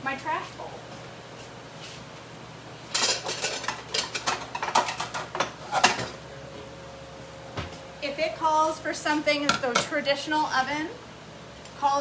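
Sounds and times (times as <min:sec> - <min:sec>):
ceramic dishes clattering: 0:03.0 - 0:06.1.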